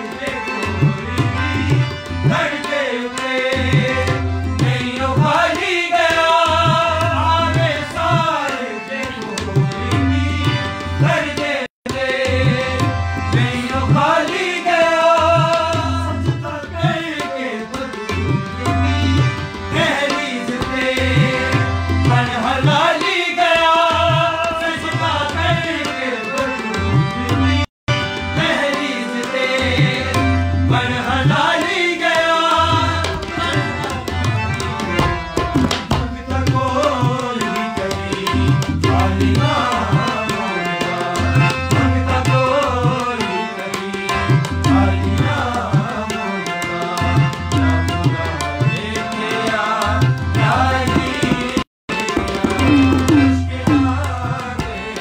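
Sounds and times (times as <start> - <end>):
hand percussion beating: 0.0 - 55.0
harmonium chords: 0.0 - 55.0
man singing devotional song: 0.0 - 55.0.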